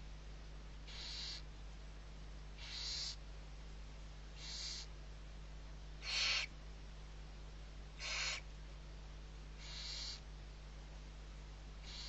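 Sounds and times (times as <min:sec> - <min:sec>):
low steady hum: 0:00.0 - 0:12.0
owlets hissing: 0:08.0 - 0:08.4.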